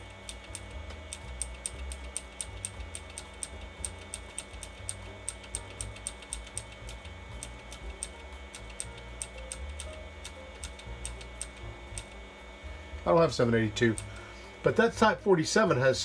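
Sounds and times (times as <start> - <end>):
computer humming: 0.0 - 16.0
computer keyboard key clicks: 0.2 - 12.2.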